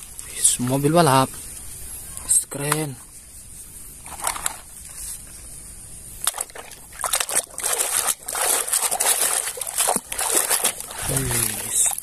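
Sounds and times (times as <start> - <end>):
water sloshing and splashing: 6.2 - 12.0.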